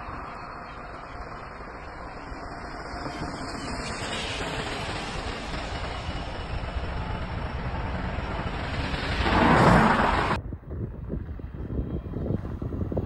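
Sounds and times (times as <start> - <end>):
locomotive passing rush: 0.0 - 13.0.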